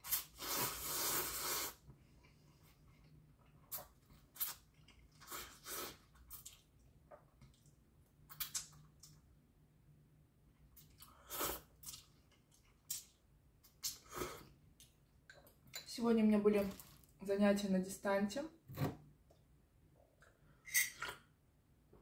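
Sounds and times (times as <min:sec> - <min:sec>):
person chewing noodles: 0:00.0 - 0:09.2, 0:10.8 - 0:15.6.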